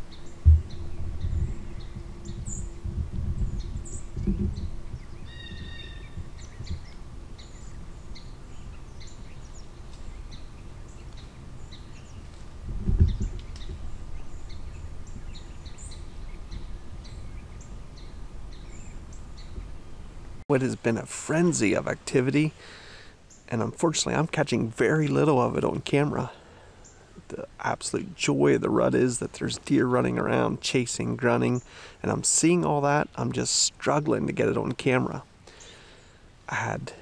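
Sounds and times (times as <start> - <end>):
low thumps: 0.0 - 8.1, 12.5 - 15.3
small birds chirping: 0.0 - 20.4, 21.6 - 36.8
bird call: 3.4 - 12.4.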